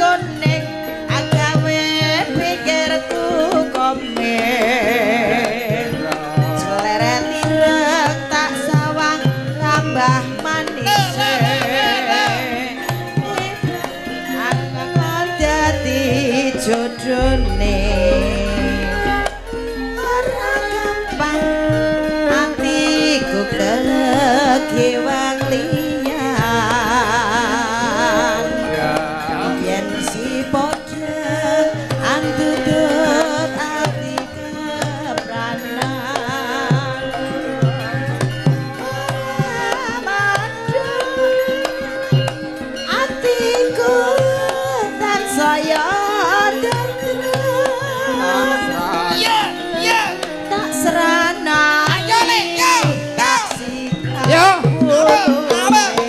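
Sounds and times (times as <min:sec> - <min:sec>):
woman singing with vibrato: 0:00.0 - 0:37.5, 0:42.9 - 0:56.0
hand drum strokes: 0:13.2 - 0:42.4, 0:45.7 - 0:56.0
metallophones and gongs: 0:13.7 - 0:33.8.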